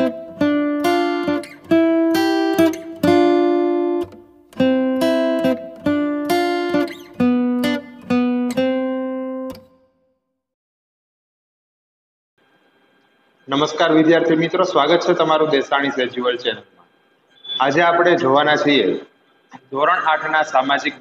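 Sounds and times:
guitar strumming chords: 0.0 - 9.9.

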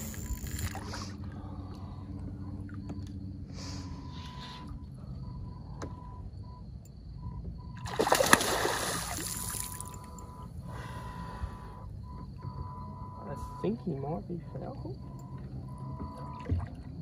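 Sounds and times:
fish splashing in water: 7.8 - 10.0.

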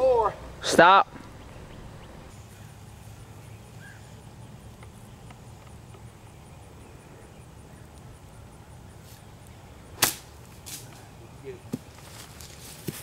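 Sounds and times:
faint chirp: 1.2 - 10.0
faint ticks: 4.7 - 6.1.

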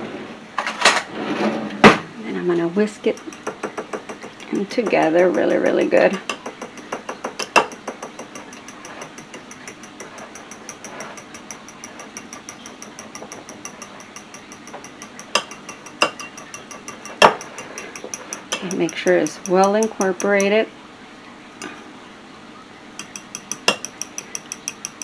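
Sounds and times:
fork knocking against bowl: 3.0 - 20.6, 23.0 - 25.0
fork clicking against glass bowl: 3.1 - 5.1, 6.2 - 20.6, 23.0 - 25.0.

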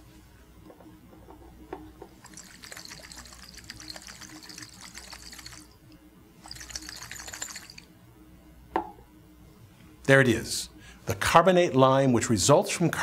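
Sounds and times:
liquid sloshing in glass flask: 2.2 - 5.8, 6.4 - 7.9.

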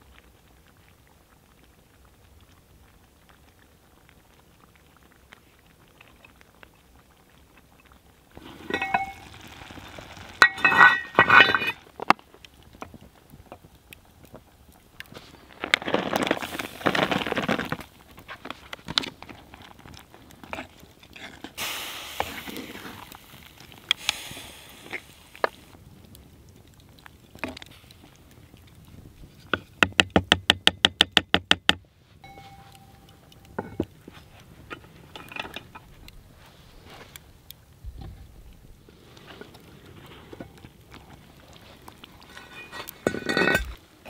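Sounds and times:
wooden spoon stirring: 8.4 - 9.6.

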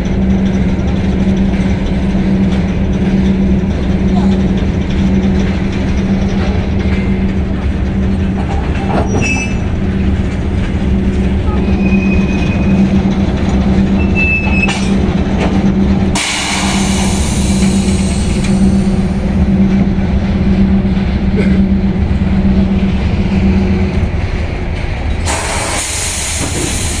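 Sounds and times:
compressed air hissing: 25.3 - 27.0.

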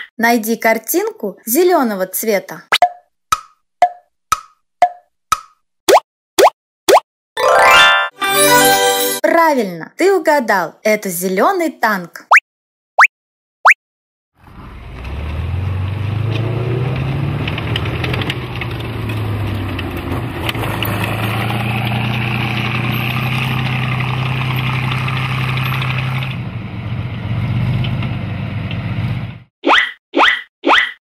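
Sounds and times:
rising chirp sound effects: 5.9 - 8.2
tank diesel engine running: 14.4 - 29.5.

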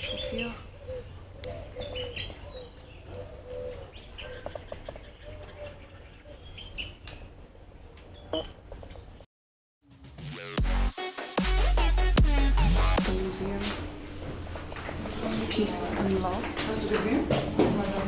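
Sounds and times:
birds chirping: 0.0 - 7.4, 14.9 - 17.8.

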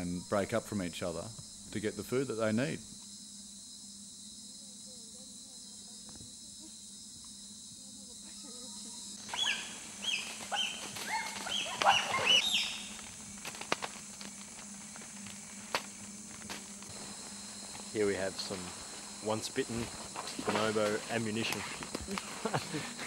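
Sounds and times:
forest insects buzzing: 0.0 - 23.0
bonobos calling: 8.3 - 13.2.

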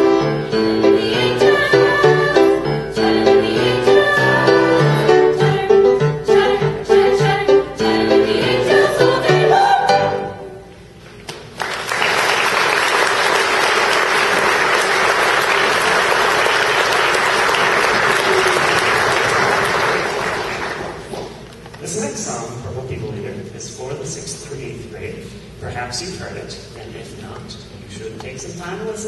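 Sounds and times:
youth choir singing: 0.1 - 10.4
audience applauding: 11.4 - 21.4.

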